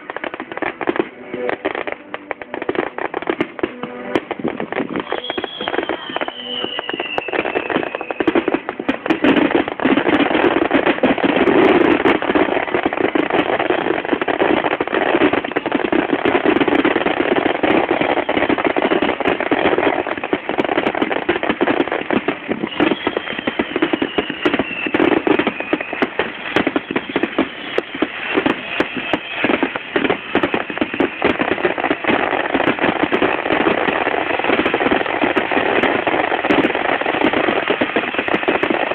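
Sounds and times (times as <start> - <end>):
fireworks bursting: 0.0 - 38.9
high falling whistle: 4.9 - 8.6, 22.7 - 31.4.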